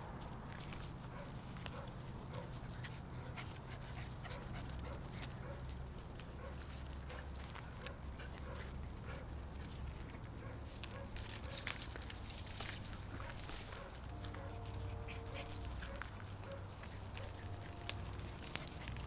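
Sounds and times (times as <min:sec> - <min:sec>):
scuffling on gravel: 0:00.2 - 0:19.0
sharp clicks on gravel: 0:06.2 - 0:19.0
puppies whimpering: 0:13.7 - 0:19.0.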